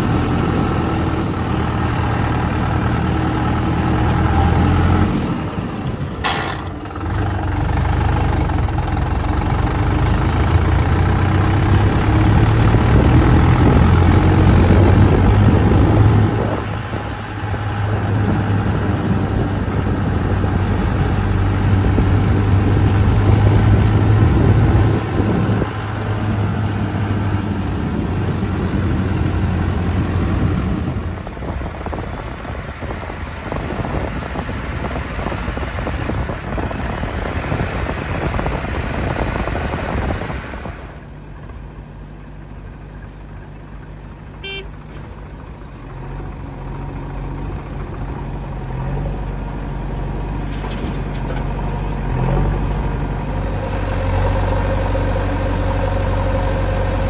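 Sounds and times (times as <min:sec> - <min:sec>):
backhoe loader diesel engine: 0:00.0 - 0:57.0
tractor diesel engine running: 0:00.0 - 0:57.0
engine idling: 0:05.3 - 0:11.8, 0:39.8 - 0:48.7.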